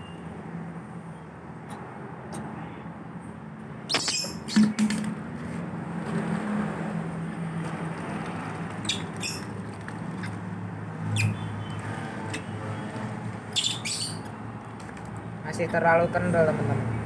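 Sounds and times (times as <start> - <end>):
baby monkey squeaking: 3.9 - 5.0, 8.8 - 9.6, 11.1 - 11.7, 13.5 - 14.3.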